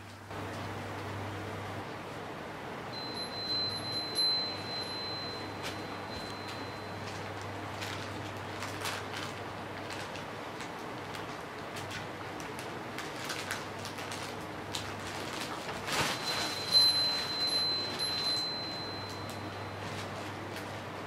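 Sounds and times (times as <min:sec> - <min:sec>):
high chime ringing: 0:02.9 - 0:07.3, 0:16.1 - 0:20.0
nylon bag rustling and crackling: 0:04.4 - 0:21.0.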